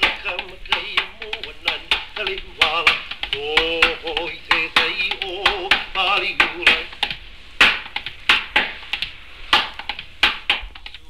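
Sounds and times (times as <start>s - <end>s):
man chanting: 0.0s - 7.0s
gourd drum beats: 0.0s - 11.0s.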